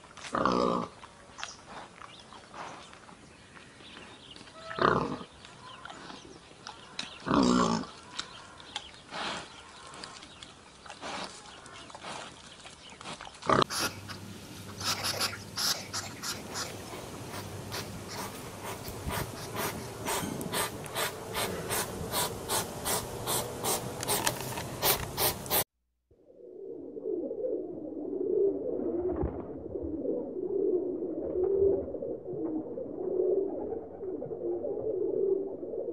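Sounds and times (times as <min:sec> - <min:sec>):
hedgehog sniffing and snuffling: 0:10.8 - 0:25.6
warthog grunting: 0:14.9 - 0:22.6.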